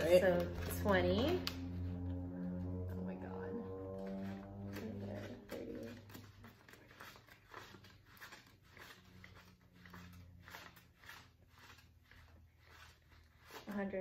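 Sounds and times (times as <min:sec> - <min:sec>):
banknotes flicking and rustling: 0:03.8 - 0:14.0.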